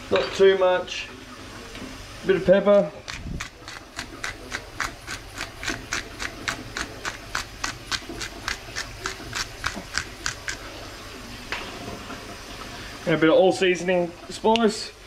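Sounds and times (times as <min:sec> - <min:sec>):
pepper grinder clicks: 0:03.1 - 0:10.6.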